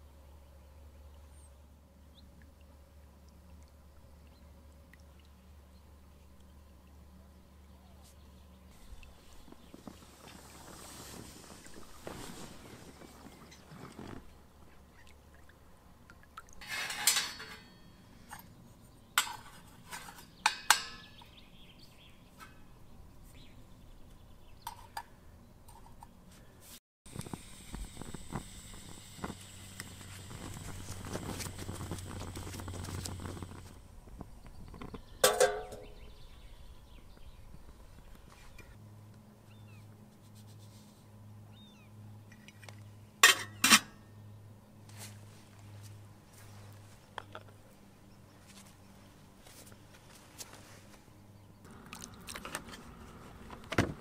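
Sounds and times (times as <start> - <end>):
low steady hum: 0.0 - 54.0
rustling scrape: 8.8 - 14.4, 16.6 - 18.3, 30.0 - 33.8, 49.4 - 51.1
metallic clinks of stove parts: 16.6 - 18.5
kettle clanking on metal: 35.2 - 36.0.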